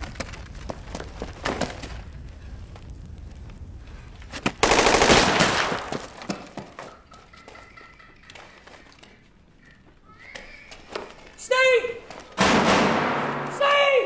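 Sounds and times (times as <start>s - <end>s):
automatic gunfire burst: 4.6s - 6.0s
single gunshots: 12.4s - 13.6s.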